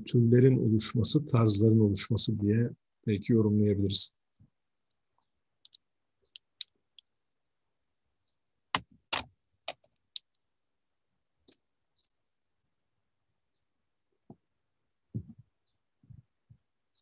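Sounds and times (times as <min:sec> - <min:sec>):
sharp clicks and small knocks: 0:04.9 - 0:07.1, 0:08.7 - 0:10.4.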